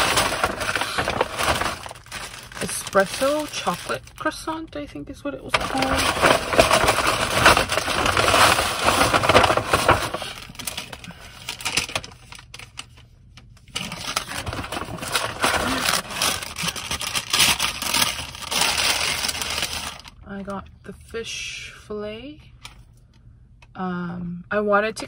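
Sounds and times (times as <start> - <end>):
paper bag rustling and crinkling: 0.0 - 4.5, 5.5 - 13.0, 13.6 - 20.2.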